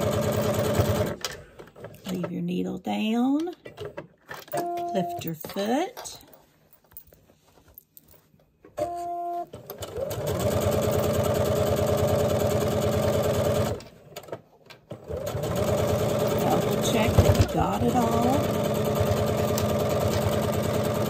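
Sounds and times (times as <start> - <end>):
sewing machine stitching: 0.0 - 1.2, 9.5 - 14.3, 14.9 - 21.0.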